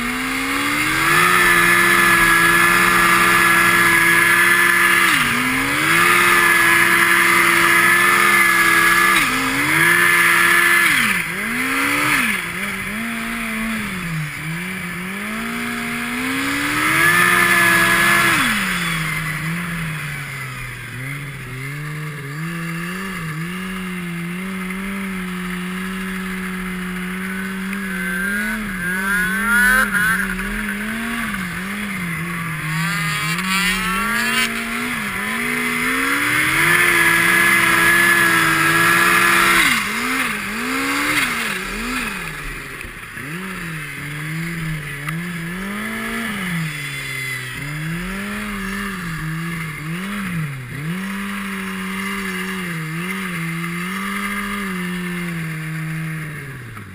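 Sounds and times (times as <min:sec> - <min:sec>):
snowmobile engine revving: 0:00.0 - 0:56.9
turbo whine: 0:12.4 - 0:40.4.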